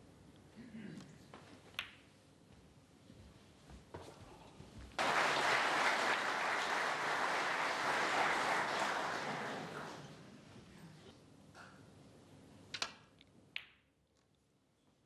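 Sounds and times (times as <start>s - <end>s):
audience applauding: 5.0s - 10.2s.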